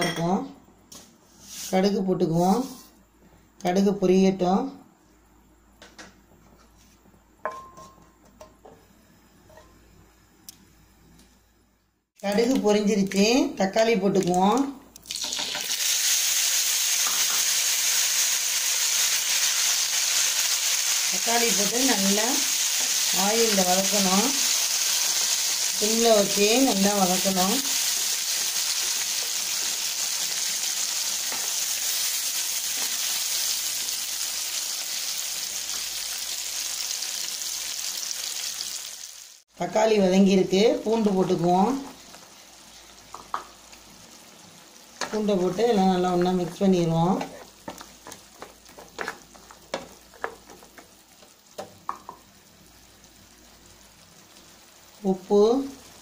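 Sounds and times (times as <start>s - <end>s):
wooden spatula scraping: 1.3s - 3.0s, 46.3s - 50.8s
tomatoes sizzling in a frying pan: 12.3s - 56.0s.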